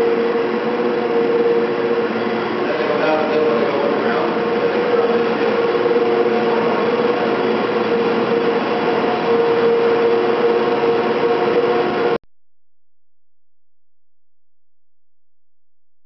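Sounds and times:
cable-winding machinery running: 0.0s - 12.2s
sustained machine hum: 0.0s - 12.2s.

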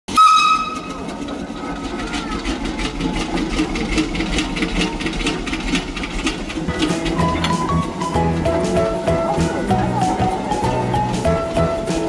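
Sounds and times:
machinery humming: 0.1s - 12.0s
fast regular clicking clatter: 1.2s - 7.2s.

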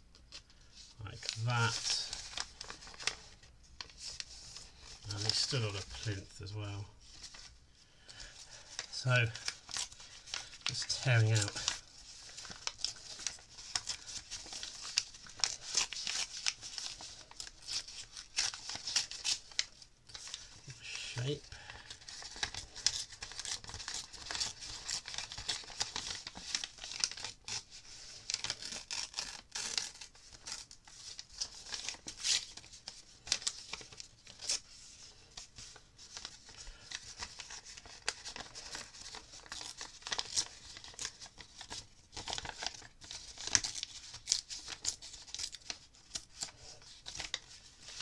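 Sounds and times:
paper crinkling: 0.2s - 48.0s
paper tearing: 9.0s - 20.3s, 22.1s - 34.6s, 36.2s - 48.0s.

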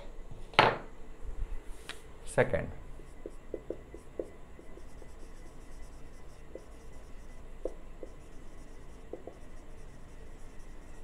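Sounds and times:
marker pen writing on whiteboard: 3.0s - 11.0s.

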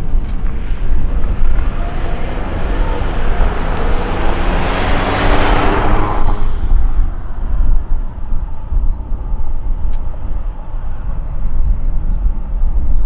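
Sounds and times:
jet engines roaring: 0.0s - 8.2s
low rumble: 0.0s - 13.0s
bird chirping: 7.2s - 12.4s.

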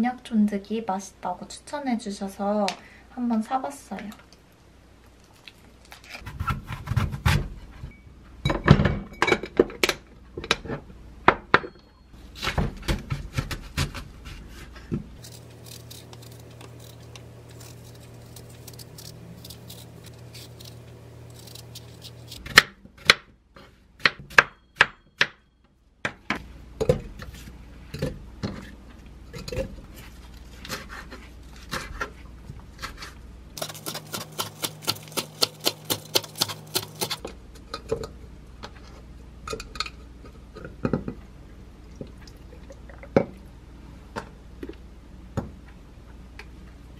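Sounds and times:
knife chopping on wooden board: 33.6s - 37.2s.

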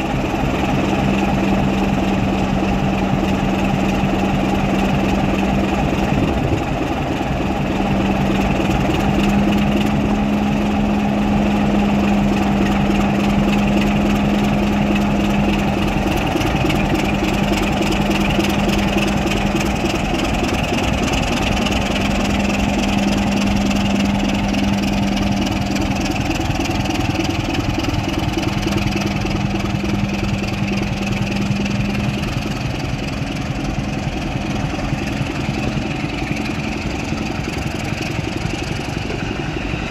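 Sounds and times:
diesel locomotive engine running: 0.0s - 39.9s.

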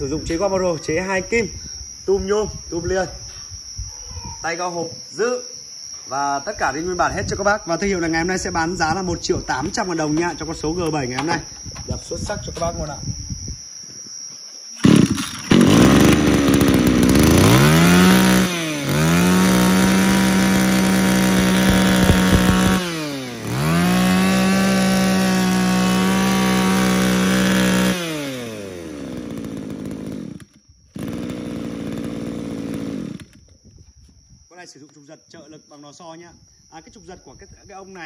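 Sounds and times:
brush cutter engine revving: 14.8s - 33.4s.

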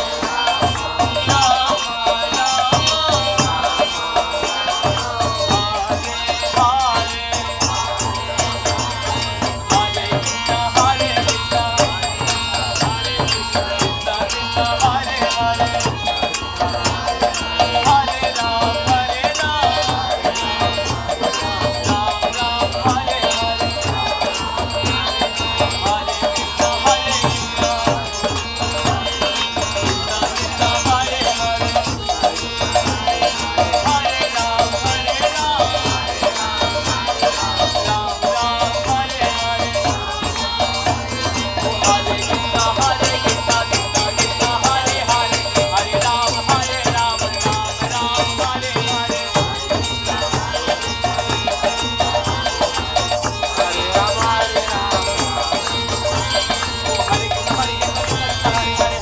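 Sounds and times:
harmonium: 0.0s - 59.0s
man singing a chant: 0.0s - 59.0s
hand cymbals clashing: 37.1s - 59.0s.

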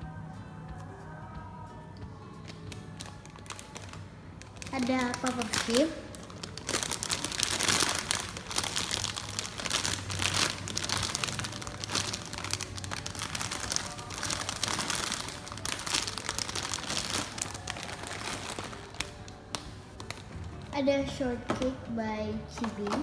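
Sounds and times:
plastic bag crinkling: 2.5s - 20.7s.

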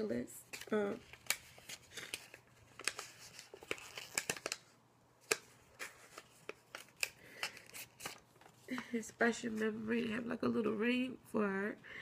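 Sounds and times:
paper rustling: 0.4s - 9.8s.

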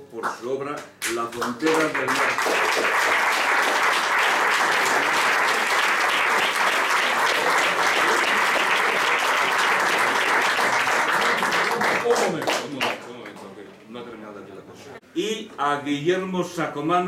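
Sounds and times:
audience applauding: 1.4s - 13.5s.

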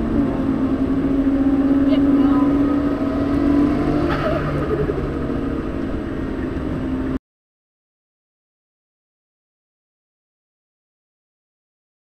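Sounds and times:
car engine at high speed: 0.0s - 7.2s.

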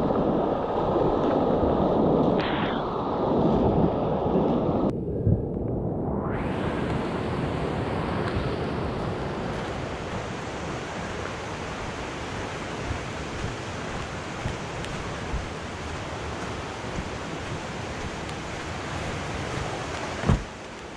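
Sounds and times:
river rapids rushing: 7.7s - 20.9s.

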